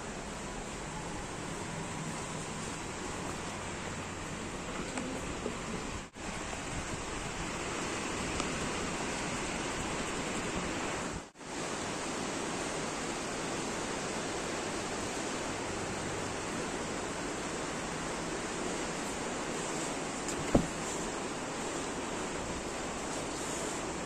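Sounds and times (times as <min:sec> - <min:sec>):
rushing wind: 0:00.0 - 0:24.0.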